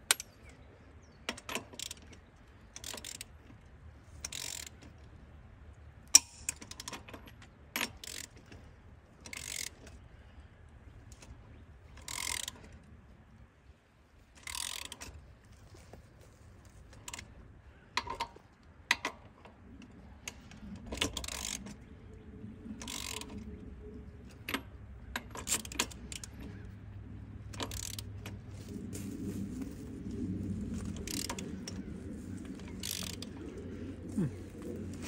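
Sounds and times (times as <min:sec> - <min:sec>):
ratchet wrench clicking: 0:01.3 - 0:02.1, 0:02.7 - 0:03.3, 0:04.2 - 0:04.8, 0:07.8 - 0:08.6, 0:09.2 - 0:10.0, 0:12.0 - 0:12.7, 0:14.4 - 0:15.2, 0:20.3 - 0:21.8, 0:22.8 - 0:23.4, 0:27.5 - 0:28.4, 0:30.9 - 0:31.8, 0:32.6 - 0:33.4.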